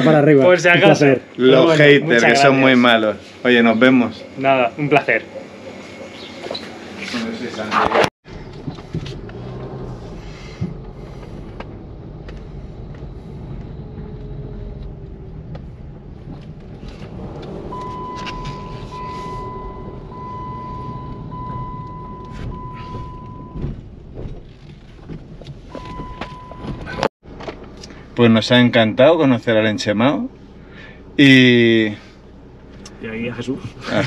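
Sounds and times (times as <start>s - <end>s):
car road and engine rumble: 0.0s - 34.0s
high beep pulses: 17.7s - 23.6s, 25.8s - 27.1s.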